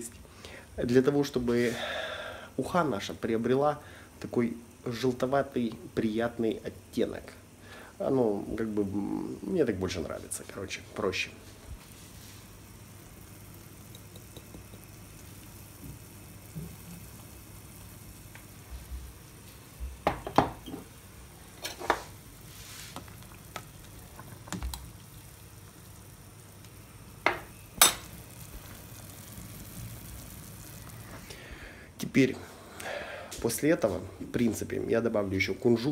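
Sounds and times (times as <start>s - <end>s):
faint hiss from pot: 0.0s - 35.9s
utensil tapping against pot: 13.9s - 14.9s.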